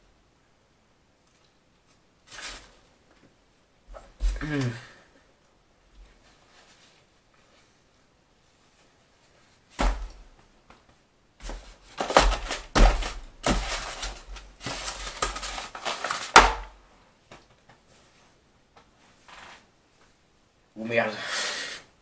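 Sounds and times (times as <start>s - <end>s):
handling thumps: 9.7s - 17.4s
knocking and rustling: 9.7s - 17.4s.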